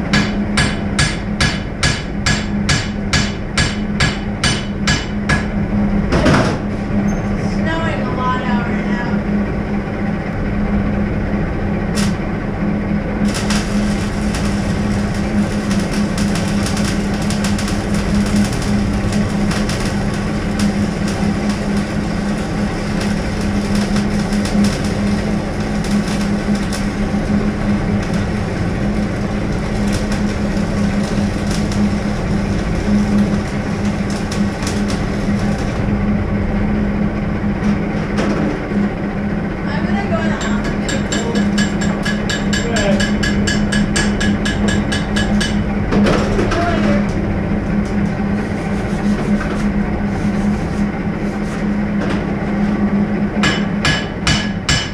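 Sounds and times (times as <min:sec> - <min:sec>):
gas torch roaring: 0:00.0 - 0:54.9
arc welding crackling: 0:10.9 - 0:37.0, 0:39.6 - 0:54.9.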